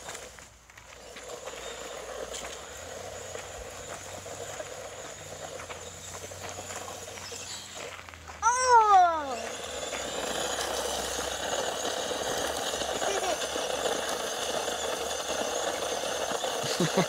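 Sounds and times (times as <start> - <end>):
toy car electric motor whirring: 0.0 - 17.0
person calling out loudly: 8.4 - 9.4.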